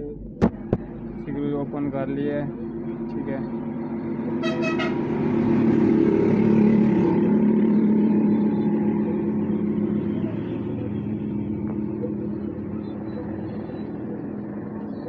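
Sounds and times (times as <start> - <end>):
vehicle engine passing by: 2.4 - 15.0
short horn toot: 4.4 - 5.0.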